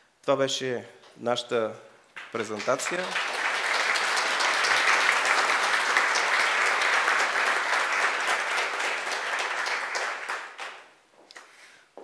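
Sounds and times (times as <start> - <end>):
audience applauding: 2.2 - 10.9.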